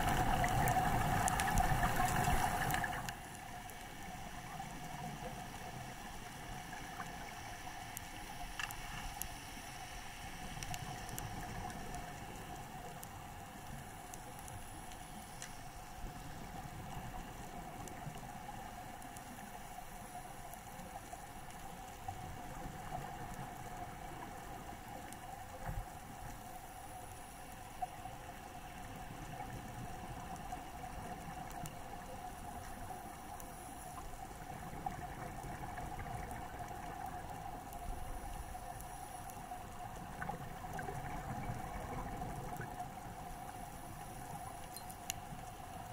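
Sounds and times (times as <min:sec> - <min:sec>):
faint clicks: 0:00.0 - 0:45.9
steady underwater hum: 0:00.0 - 0:45.9.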